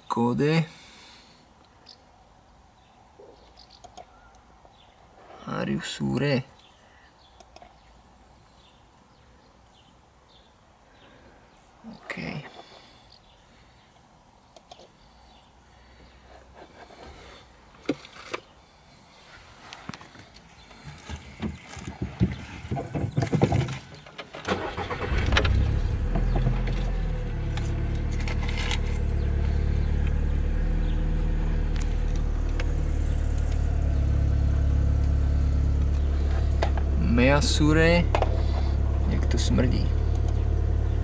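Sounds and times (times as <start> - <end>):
handling clicks and knocks: 19.9 - 24.5, 38.1 - 38.6
car engine starting and idling: 24.4 - 41.0.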